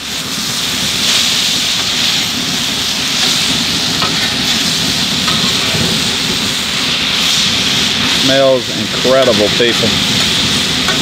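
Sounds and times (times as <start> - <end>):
food sizzling on a griddle: 0.0 - 11.0
steady low rumble: 0.2 - 11.0
metal spatula scraping griddle: 3.2 - 6.0.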